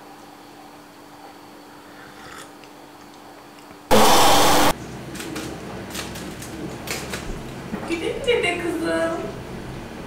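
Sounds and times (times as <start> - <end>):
loud burst of hiss: 3.9 - 4.8.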